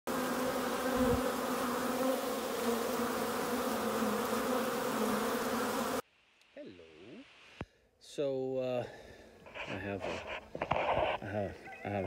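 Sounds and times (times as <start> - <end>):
honeybees buzzing: 0.1 - 6.0.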